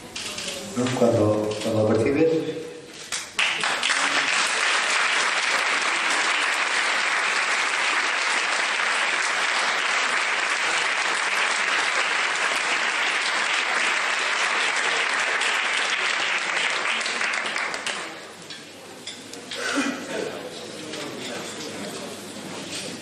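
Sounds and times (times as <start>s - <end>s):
audience applauding: 3.1s - 18.2s.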